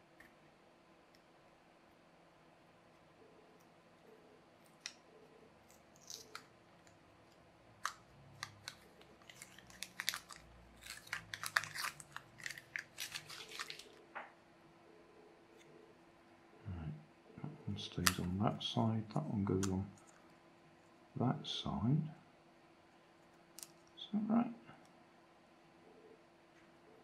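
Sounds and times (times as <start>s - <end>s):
faint steady hum: 0.0s - 27.0s
plastic parts clicking: 5.6s - 14.0s.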